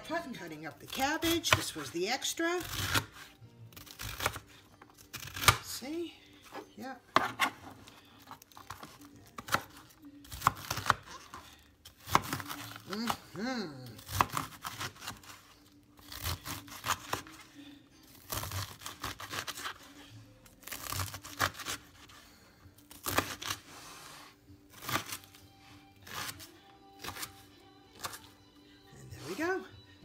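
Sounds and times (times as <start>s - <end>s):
knife chopping on plastic board: 7.1s - 7.6s.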